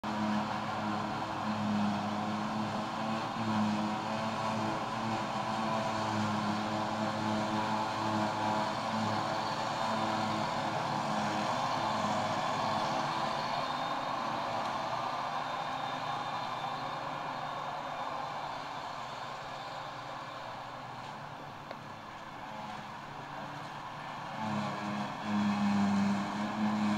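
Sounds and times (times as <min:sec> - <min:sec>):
forage harvester engine humming: 0:00.0 - 0:26.9.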